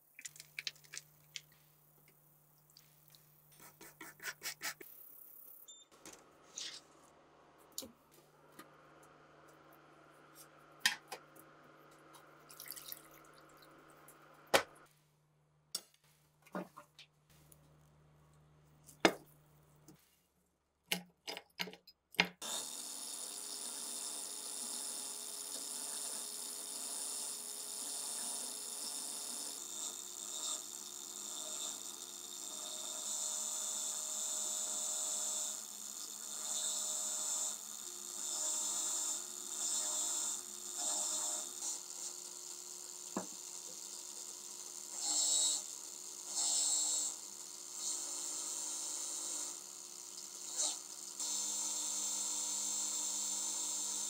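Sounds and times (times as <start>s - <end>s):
sharp clicks and knocks: 20.9s - 22.4s
angle grinder running: 22.4s - 54.0s.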